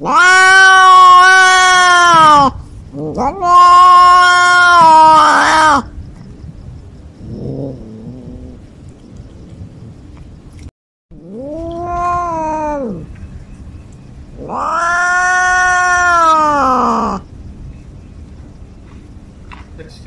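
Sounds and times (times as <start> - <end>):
cat yowling: 0.0 - 5.9, 11.2 - 13.1, 14.4 - 17.2.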